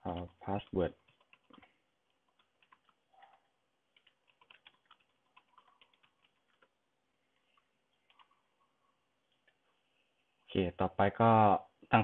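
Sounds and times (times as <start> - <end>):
computer keyboard typing: 0.0 - 8.4.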